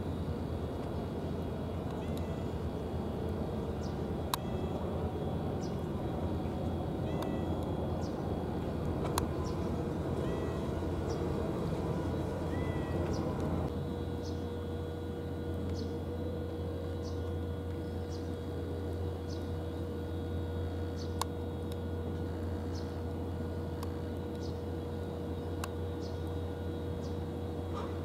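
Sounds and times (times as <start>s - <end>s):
steady low hum: 0.0s - 28.0s
faint steady high tone: 3.8s - 8.5s, 9.4s - 14.4s.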